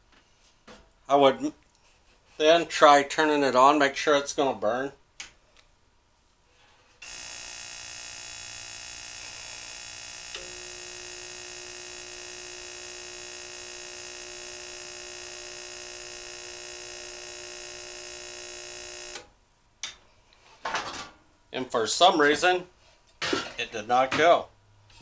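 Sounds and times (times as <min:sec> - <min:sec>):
heater fan motor humming: 0:07.0 - 0:19.3.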